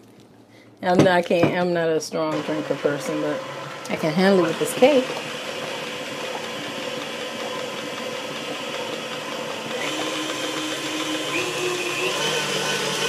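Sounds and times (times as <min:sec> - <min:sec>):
stand mixer motor humming: 0:02.3 - 0:13.0.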